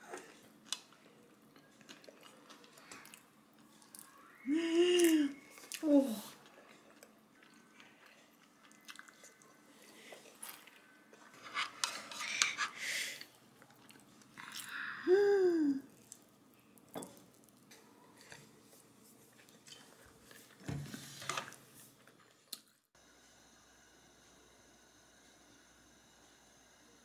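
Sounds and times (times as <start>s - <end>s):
food being chewed: 0.0s - 4.2s, 5.0s - 12.5s, 13.2s - 14.8s, 15.9s - 20.7s.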